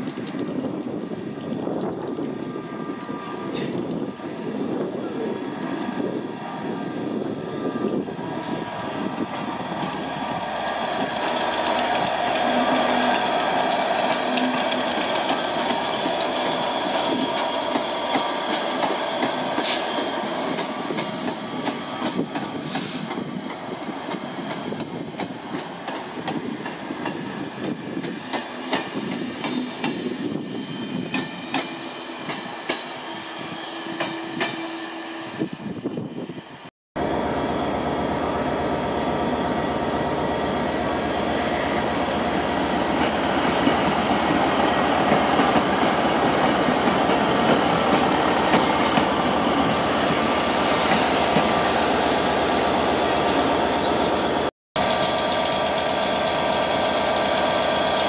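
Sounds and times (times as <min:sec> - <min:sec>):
locomotive engine: 0:02.2 - 0:24.7, 0:36.4 - 0:58.0
train wheels clicking over rail joints: 0:07.0 - 0:33.0, 0:54.8 - 0:58.0
high wheel squeal: 0:27.2 - 0:32.4, 0:51.9 - 0:55.1.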